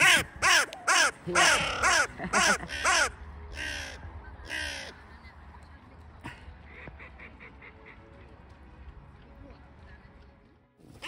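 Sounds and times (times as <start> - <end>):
crow cawing: 0.0 - 5.0.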